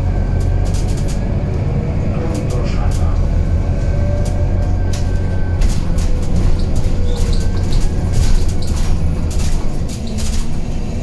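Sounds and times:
bus engine and road rumble: 0.0s - 11.0s
light rattles and clicks: 4.2s - 11.0s.

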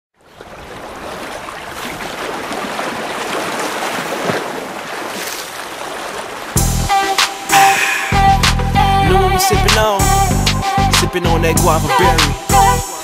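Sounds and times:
ocean waves on beach: 0.2s - 9.5s
music with heavy bass: 6.6s - 13.0s.

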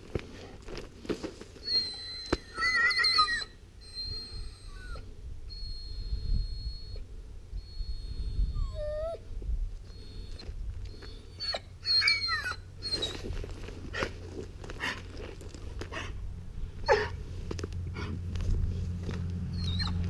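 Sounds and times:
puppy whining: 1.6s - 16.2s, 16.8s - 17.2s, 19.5s - 20.0s.

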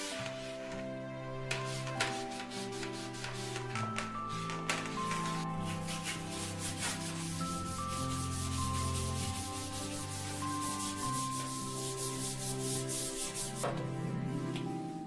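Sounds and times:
brush scrubbing a metal sink: 4.8s - 13.7s.

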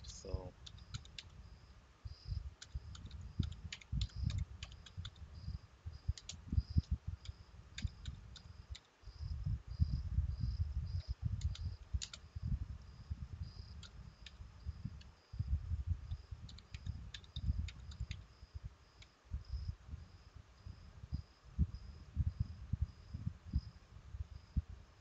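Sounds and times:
computer keyboard key clicks: 0.6s - 1.3s, 2.6s - 5.2s, 6.2s - 8.9s, 11.0s - 12.2s, 16.1s - 18.2s.

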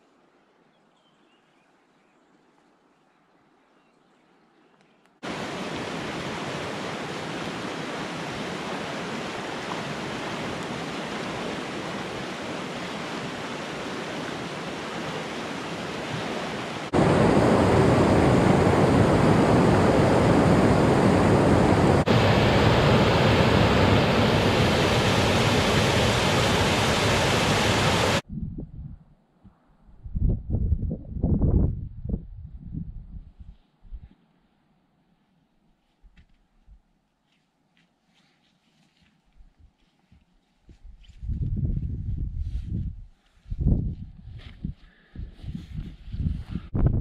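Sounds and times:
stream rushing over rocks: 5.2s - 18.2s, 21.9s - 28.2s.

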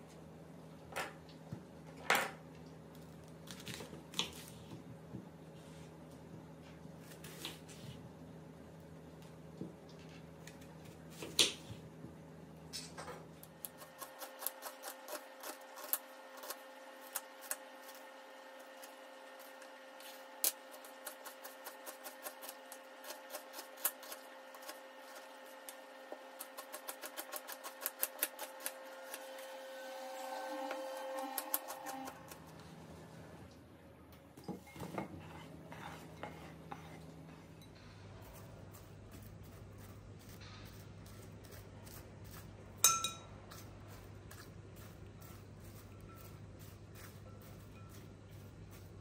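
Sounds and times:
knife slicing onions: 13.6s - 29.5s, 31.1s - 32.6s, 38.3s - 42.8s, 43.4s - 49.0s.

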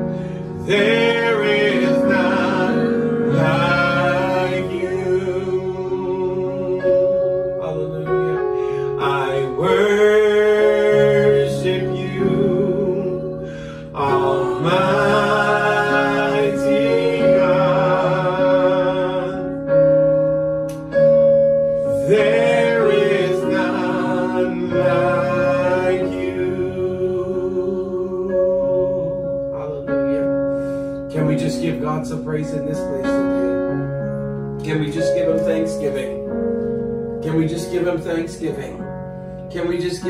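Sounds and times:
singers singing: 0.0s - 7.2s, 9.0s - 19.9s, 21.8s - 29.2s
electronic keyboard chords: 0.0s - 40.0s.

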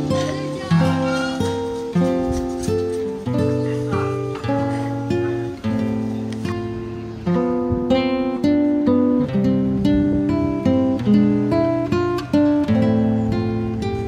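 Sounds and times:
plucked string melody: 0.0s - 14.0s.

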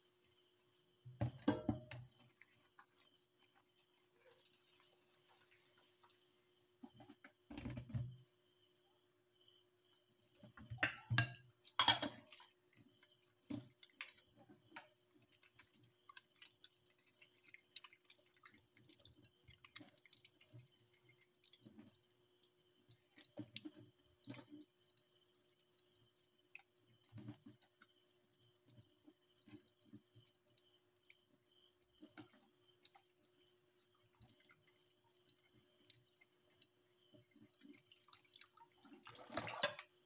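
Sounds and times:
tap water dripping and splashing: 0.9s - 4.0s, 10.2s - 40.0s
brush scrubbing a bowl: 2.0s - 7.2s, 12.6s - 39.8s
ceramic dishes knocking together: 10.7s - 12.2s.

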